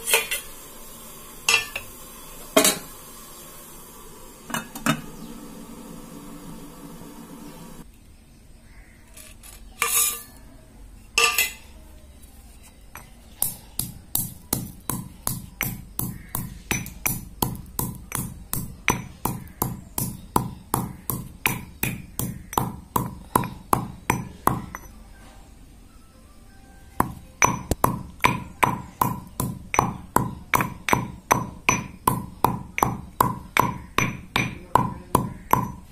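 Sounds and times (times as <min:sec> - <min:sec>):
stone pestle pounding in mortar: 0:13.0 - 0:24.9, 0:27.0 - 0:35.9.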